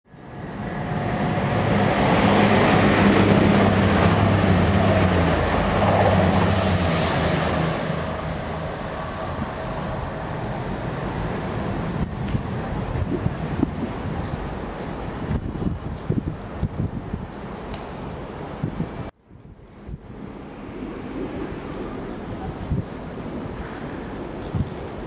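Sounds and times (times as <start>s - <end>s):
train low hum: 0.1s - 25.0s
train wheels rumbling on rails: 0.2s - 18.1s.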